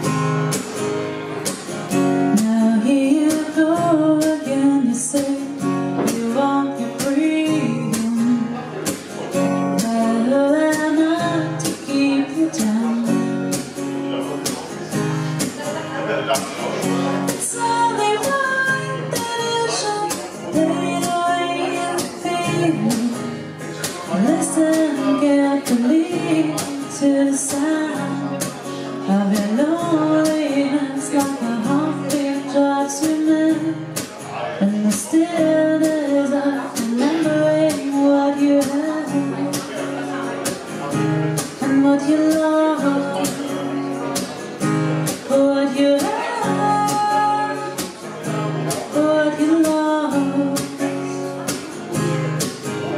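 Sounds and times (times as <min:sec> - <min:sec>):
strummed acoustic guitar: 0:00.0 - 0:52.9
woman singing: 0:02.2 - 0:09.0, 0:09.7 - 0:13.6, 0:17.3 - 0:23.4, 0:24.0 - 0:34.0, 0:34.6 - 0:39.8, 0:41.4 - 0:43.6, 0:45.1 - 0:48.0, 0:48.8 - 0:51.2.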